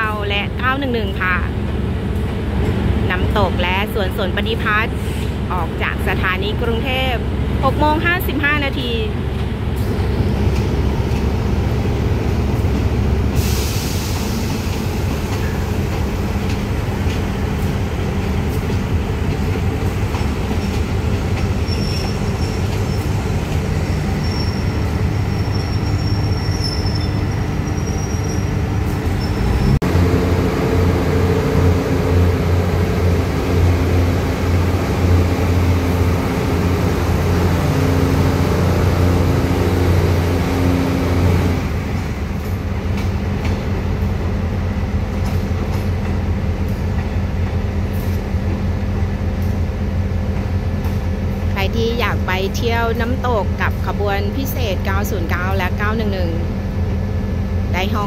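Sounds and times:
diesel train engines idling: 0.0 - 58.0
burst of hiss: 13.3 - 14.6.

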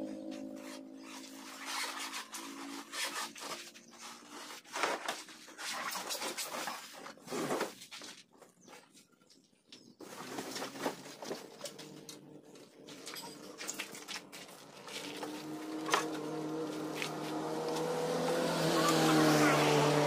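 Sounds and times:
cardboard scraping and rustling: 0.6 - 8.6, 10.0 - 12.0, 13.9 - 17.9.

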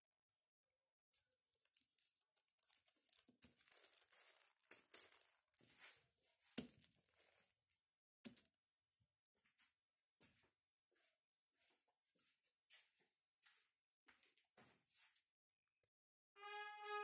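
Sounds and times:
plastic sheet and paper crinkling: 1.2 - 8.4.

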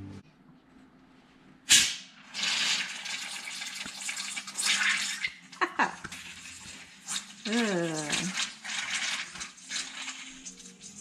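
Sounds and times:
gas hissing from jar: 1.7 - 5.3, 6.0 - 11.0
brine fizzing and gurgling: 2.3 - 11.0.

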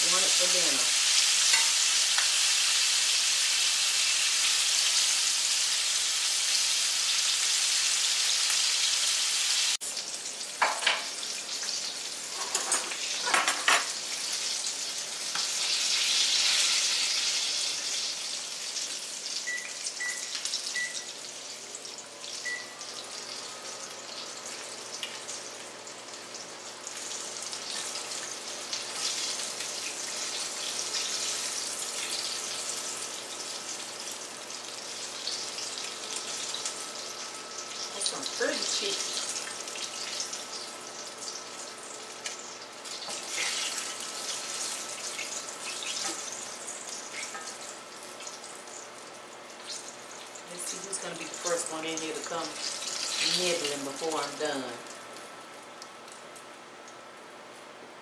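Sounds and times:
chicken sizzling in skillet: 0.0 - 57.2.

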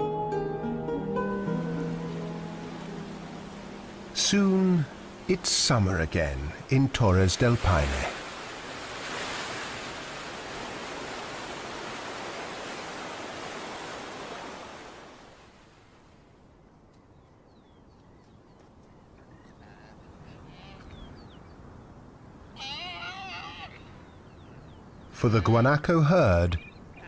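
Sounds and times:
whitewater rushing: 1.9 - 15.1
faint bird chirps: 16.6 - 25.6, 26.5 - 27.0.

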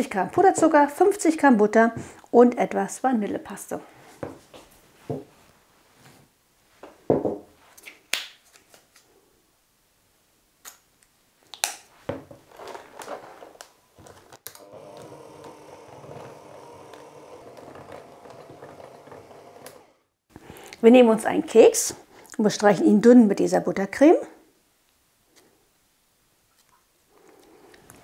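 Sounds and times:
electric hand mixer running: 14.5 - 20.2.

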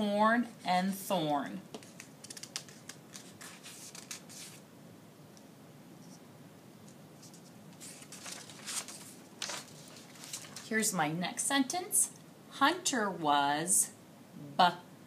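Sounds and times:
paper rustling: 1.7 - 4.6, 7.2 - 10.8.

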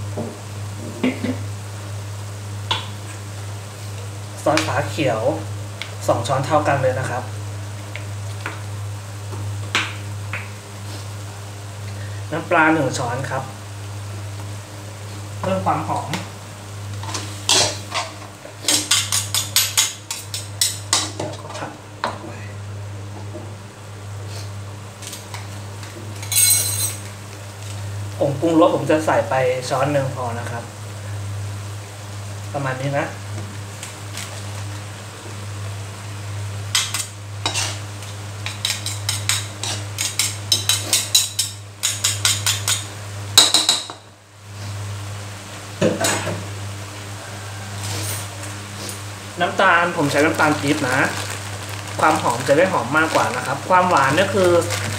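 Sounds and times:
faint sizzle: 0.0 - 41.9, 42.7 - 54.9
metal spatula scraping a wok: 37.4 - 37.9
spatula scraping metal wok: 37.4 - 42.8.

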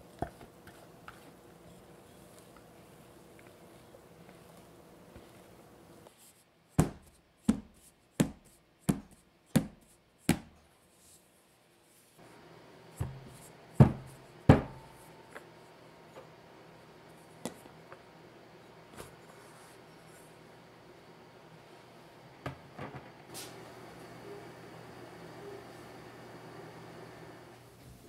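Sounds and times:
cake pan knocking on counter: 13.8 - 14.9.

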